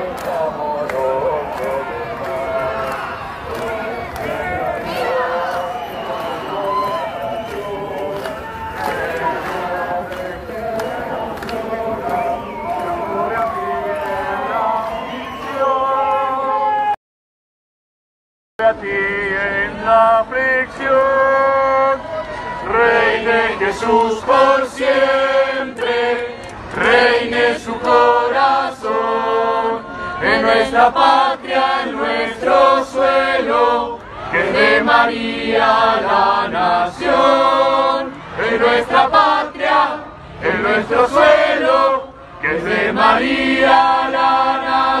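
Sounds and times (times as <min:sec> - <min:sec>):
crowd singing religious song: 0:00.0 - 0:16.9, 0:18.6 - 0:22.0, 0:22.6 - 0:45.0.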